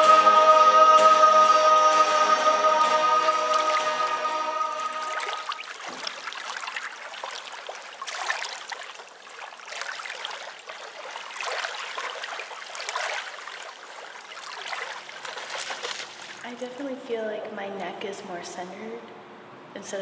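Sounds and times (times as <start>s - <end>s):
waves lapping on stony shore: 3.5s - 16.6s.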